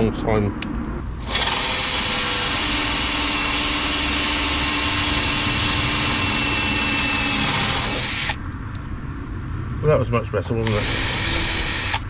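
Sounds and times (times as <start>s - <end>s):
power drill boring through metal: 1.2s - 8.4s, 10.6s - 12.0s.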